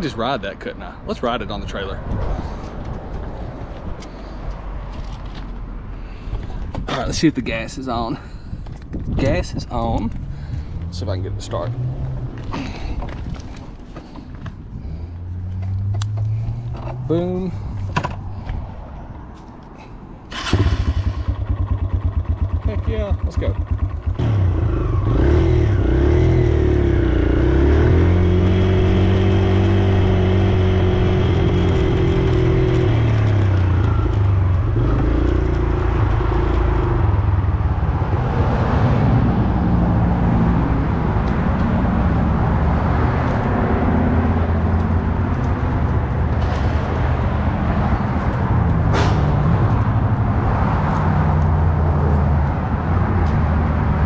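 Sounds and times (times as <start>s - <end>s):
dirt bike engine revving: 24.1s - 34.1s.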